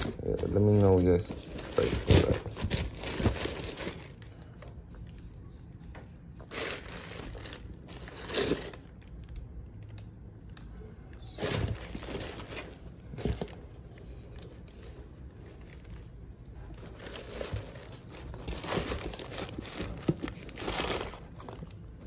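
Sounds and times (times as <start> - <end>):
tissue paper and sneakers rustling: 0.0 - 4.2, 6.5 - 8.9, 11.4 - 13.6, 16.7 - 21.6.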